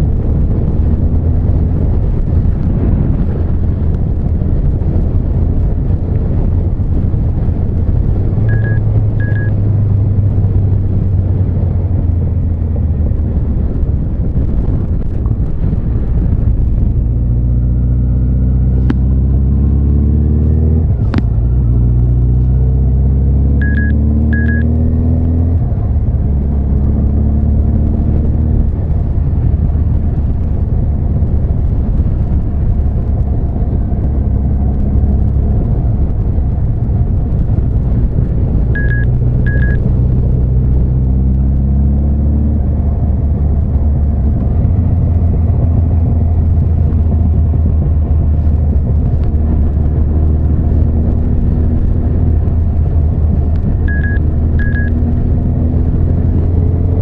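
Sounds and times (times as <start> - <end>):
wind rush: 0.0 - 57.0
short high beeps: 8.5 - 9.6, 23.6 - 24.7, 38.8 - 39.8, 53.9 - 55.0.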